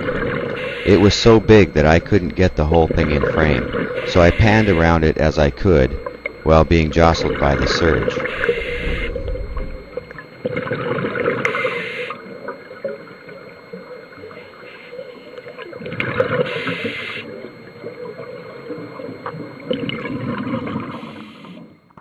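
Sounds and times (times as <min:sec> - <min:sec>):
air bubbles gurgling underwater: 0:05.9 - 0:11.6, 0:17.8 - 0:20.9.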